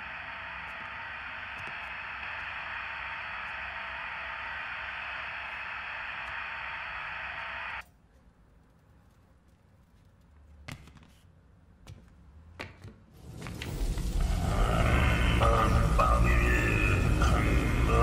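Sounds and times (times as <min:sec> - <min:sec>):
television static hiss: 0:00.0 - 0:07.9, 0:13.8 - 0:18.0.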